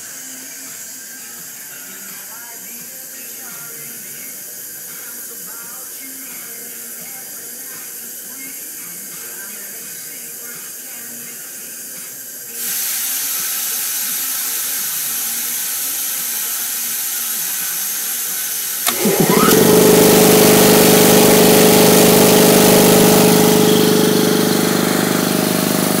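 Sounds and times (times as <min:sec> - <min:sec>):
compressed air hissing: 0:11.7 - 0:26.0
air compressor running: 0:12.6 - 0:26.0.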